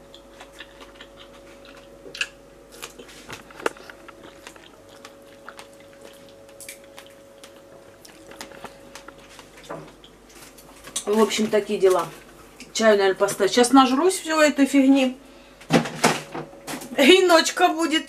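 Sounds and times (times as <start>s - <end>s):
person chewing food: 0.0s - 11.1s
faint steady hum: 0.0s - 18.0s.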